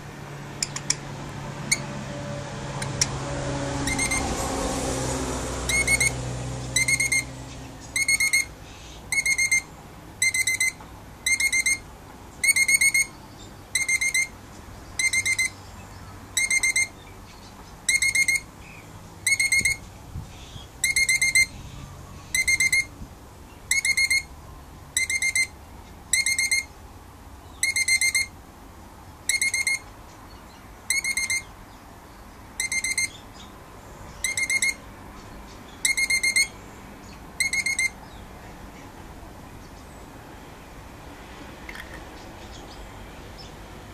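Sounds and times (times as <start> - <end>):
lorikeet calling: 3.9 - 4.3, 5.7 - 11.8, 12.4 - 14.4, 15.0 - 22.9, 23.6 - 24.3, 25.0 - 26.8, 27.5 - 28.3, 29.3 - 31.6, 32.6 - 33.5, 34.1 - 34.9, 35.7 - 38.2.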